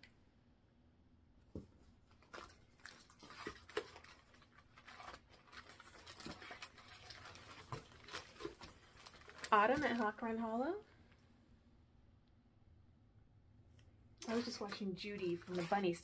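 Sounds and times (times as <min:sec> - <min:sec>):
plastic crinkling: 0:02.0 - 0:11.2, 0:14.2 - 0:16.0.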